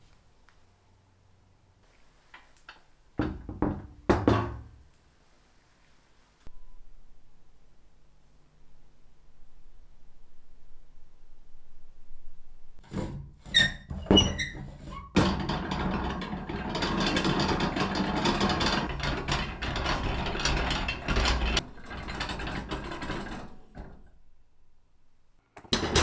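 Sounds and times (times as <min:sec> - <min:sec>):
gearing clattering rattle: 0:15.1 - 0:24.2.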